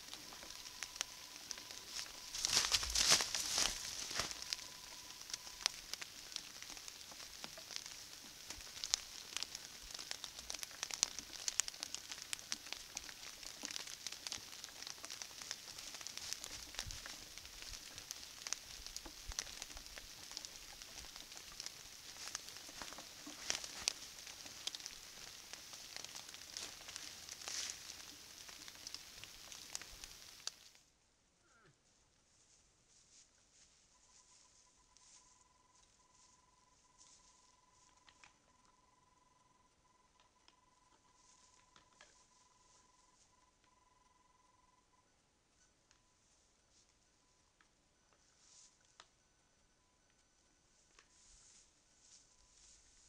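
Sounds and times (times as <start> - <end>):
crackles on dry leaves: 0.0 - 30.9, 31.9 - 39.3, 40.2 - 44.6, 45.9 - 49.1, 50.1 - 53.0
steady high hiss: 0.0 - 30.9, 46.2 - 53.0.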